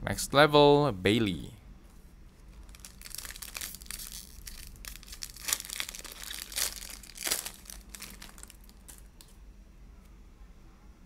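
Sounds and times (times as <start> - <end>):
foil wrapper crinkling: 2.5 - 9.3
foil wrapper tearing: 2.6 - 9.3.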